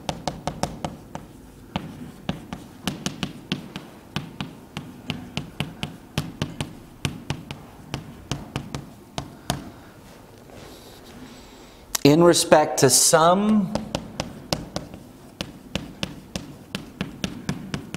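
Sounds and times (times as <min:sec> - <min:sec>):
chalk tapping on a chalkboard: 0:00.0 - 0:09.8, 0:13.4 - 0:17.9.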